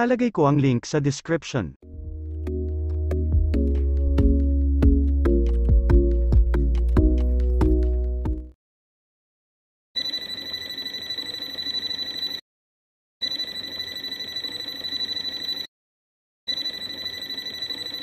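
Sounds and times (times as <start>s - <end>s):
high-pitched electronic alarm tone: 13.2s - 15.7s, 16.5s - 18.0s.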